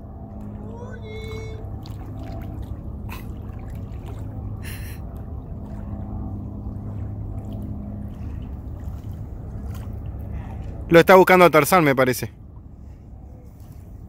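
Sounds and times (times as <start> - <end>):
low motor hum: 0.0 - 14.0.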